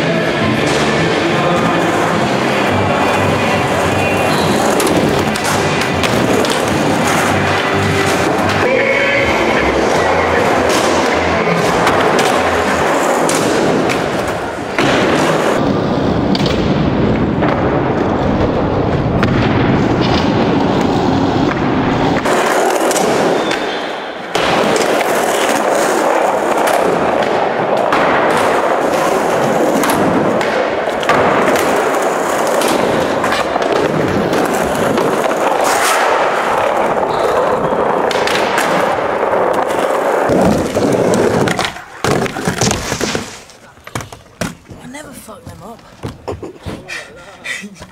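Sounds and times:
skateboard wheels rolling on concrete: 0.0 - 47.9
skateboard popping and landing: 10.0 - 44.8.

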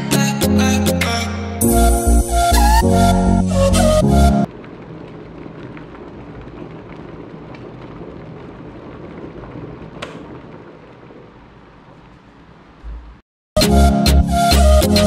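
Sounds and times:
kettle water boiling: 4.5 - 13.2.

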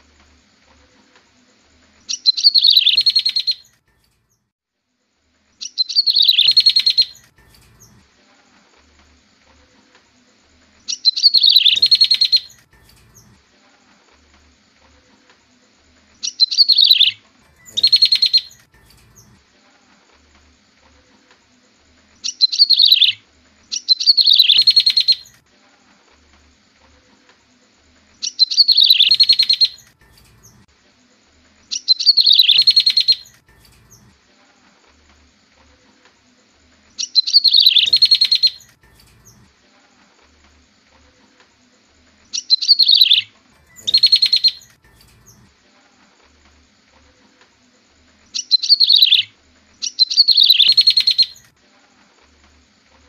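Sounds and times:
bird call with buzzy trill: 10.9 - 12.6, 16.2 - 18.6, 28.2 - 29.8, 31.7 - 33.3, 37.0 - 39.4, 42.4 - 44.7.

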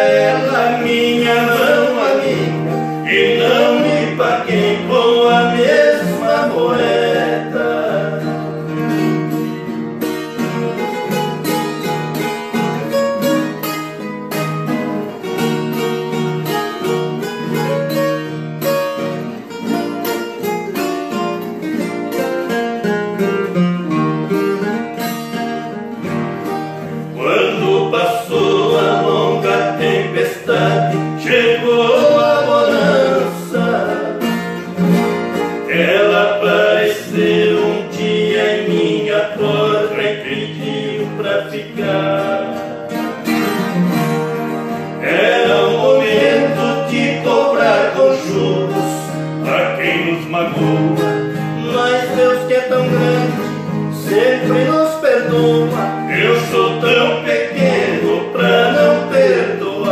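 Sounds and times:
men singing together: 0.0 - 8.8, 27.1 - 34.8, 35.6 - 43.0, 45.0 - 59.9
acoustic guitars playing: 0.0 - 59.9.

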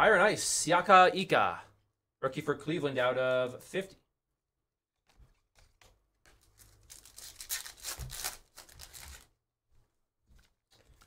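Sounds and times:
cards sliding and rustling: 5.0 - 9.3.

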